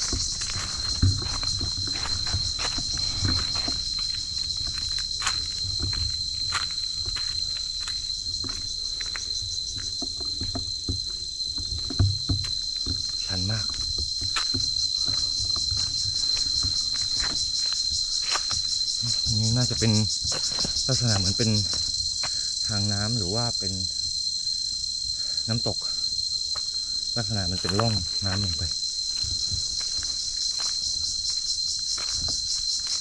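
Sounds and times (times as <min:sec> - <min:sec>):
footsteps on dry leaves: 0:00.0 - 0:09.6
high-pitched insect drone: 0:00.0 - 0:33.0.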